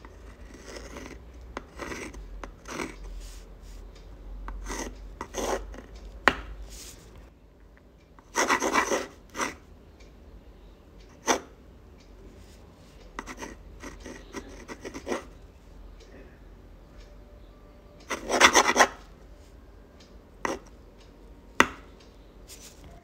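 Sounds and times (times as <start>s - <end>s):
pen scratching on paper: 0.1s - 3.8s, 4.6s - 5.9s, 8.3s - 9.6s, 13.2s - 15.3s, 18.1s - 19.0s, 20.5s - 20.7s.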